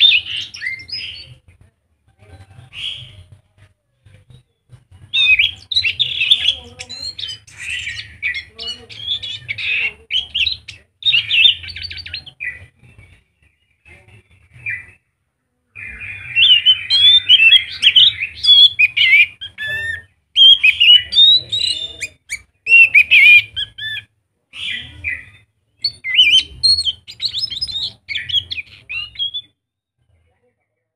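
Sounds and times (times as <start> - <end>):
thrush singing: 4.8 - 13.0, 15.8 - 23.8.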